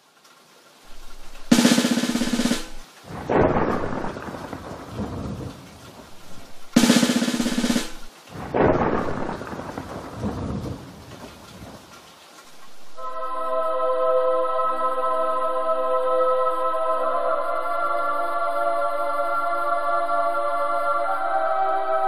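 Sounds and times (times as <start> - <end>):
thunder-like rumble: 0.9 - 1.6, 2.3 - 11.8
sharp pitched hit: 0.9 - 2.8, 6.4 - 8.1.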